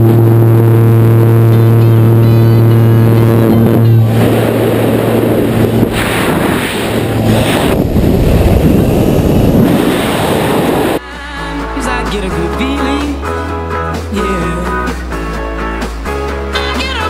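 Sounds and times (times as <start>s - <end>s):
aircraft engine drone: 0.0s - 11.0s
wind rushing over microphone: 0.0s - 11.0s
music: 0.6s - 5.9s, 11.0s - 17.0s.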